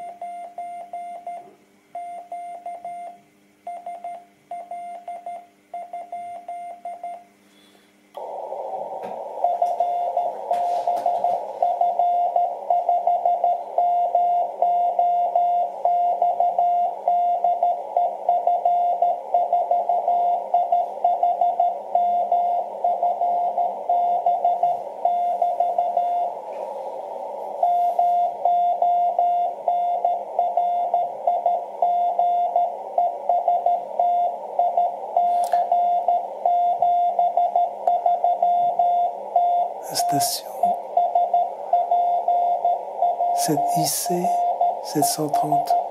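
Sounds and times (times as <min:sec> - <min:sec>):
radio band noise hiss: 0:08.2 - 0:11.8, 0:26.2 - 0:28.2, 0:39.7 - 0:41.7, 0:43.4 - 0:45.9
morse code beeping: 0:09.4 - 0:26.4, 0:27.6 - 0:45.9.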